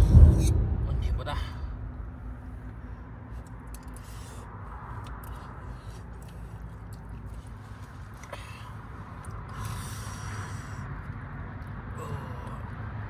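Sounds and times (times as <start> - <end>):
low rumble: 0.0 - 5.8.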